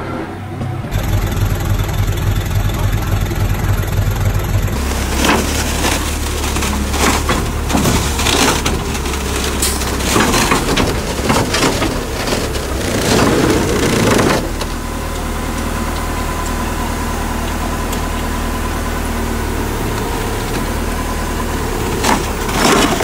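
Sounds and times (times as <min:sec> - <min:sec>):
diesel machinery drone: 0:00.0 - 0:23.0
crunching and cracking debris: 0:04.7 - 0:18.4, 0:19.8 - 0:23.0.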